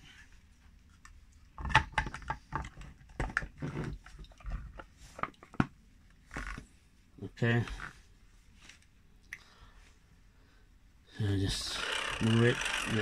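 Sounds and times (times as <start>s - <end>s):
insulation tester clicking and rattling: 11.8s - 13.0s.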